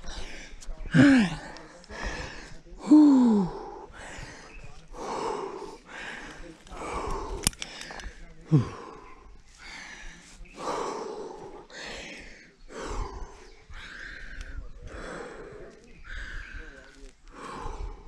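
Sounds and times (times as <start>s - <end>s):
person breathing hard: 0.0s - 18.0s
person grunting: 0.9s - 1.6s, 2.8s - 3.8s, 8.5s - 8.9s.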